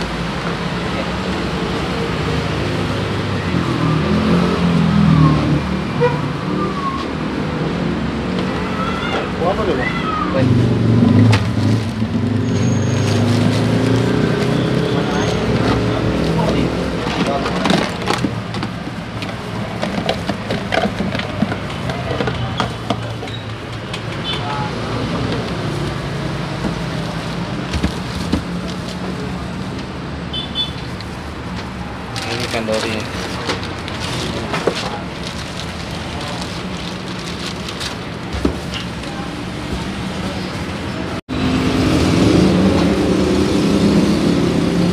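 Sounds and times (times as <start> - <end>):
road traffic noise: 0.0 - 44.9
vehicle engine passing: 10.3 - 17.7
plastic boxes knocking and clicking: 17.0 - 24.2
plastic bags crinkling: 32.1 - 39.0.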